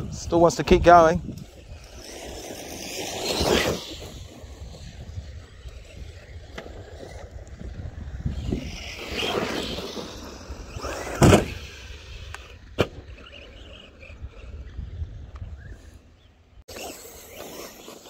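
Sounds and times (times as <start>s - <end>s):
rc truck whirring: 0.0s - 18.0s
clicking differential: 1.2s - 18.0s
loud thump: 11.1s - 11.6s.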